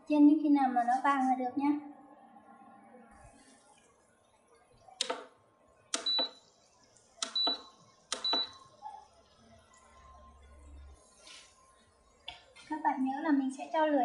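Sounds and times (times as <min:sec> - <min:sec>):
control panel clicks: 0:05.0 - 0:05.3, 0:06.0 - 0:06.4, 0:07.2 - 0:08.5
short high beeps: 0:06.0 - 0:06.4, 0:07.2 - 0:08.6.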